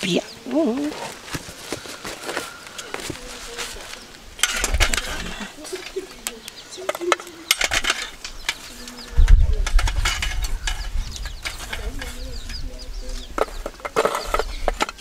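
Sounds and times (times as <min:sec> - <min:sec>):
coals knocking together: 0:04.4 - 0:08.6
metal spoon scraping charcoal: 0:13.4 - 0:15.0.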